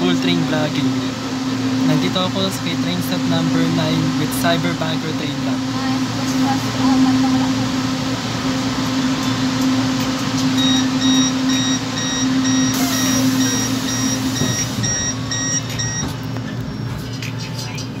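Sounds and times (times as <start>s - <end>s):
train humming at platform: 0.0s - 18.0s
high electronic warning beeps: 10.2s - 17.0s.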